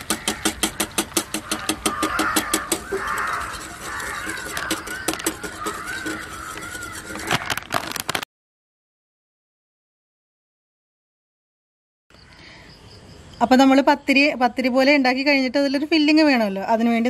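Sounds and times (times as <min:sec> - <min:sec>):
whisk clicking against glass bowl: 0:00.0 - 0:07.3
batter swishing: 0:02.8 - 0:08.0.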